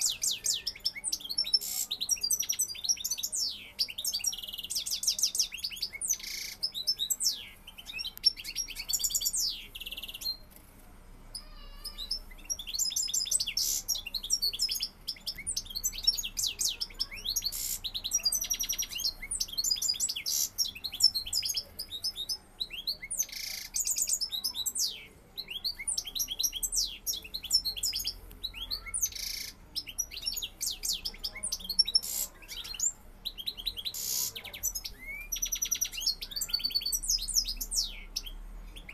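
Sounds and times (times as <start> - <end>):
goldfinch twittering song: 11.4 - 38.9.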